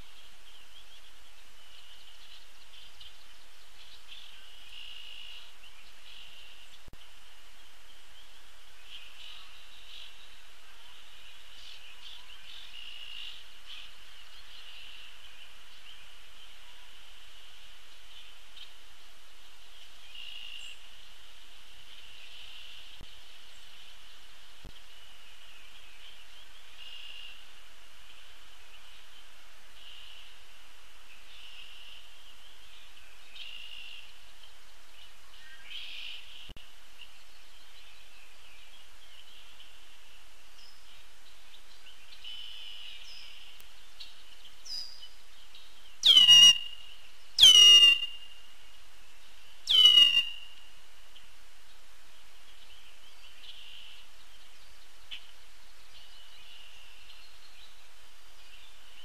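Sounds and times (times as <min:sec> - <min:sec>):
high-pitched natural chorus: 0:00.0 - 0:59.0
faint bird calls: 0:31.2 - 0:59.0
loud falling calls: 0:47.4 - 0:48.2.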